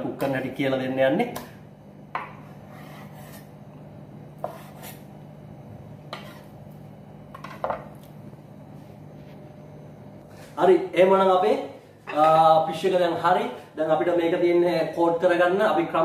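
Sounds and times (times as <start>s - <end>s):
knife scraping cutting board: 2.2s - 3.6s, 4.3s - 5.1s, 6.0s - 6.7s.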